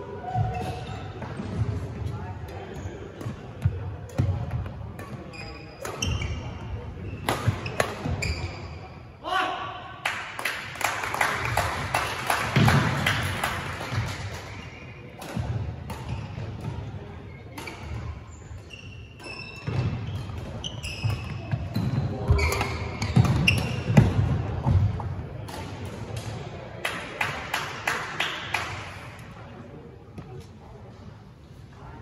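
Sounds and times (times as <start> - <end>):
shoes squeaking on court floor: 2.7 - 9.0, 15.9 - 24.8.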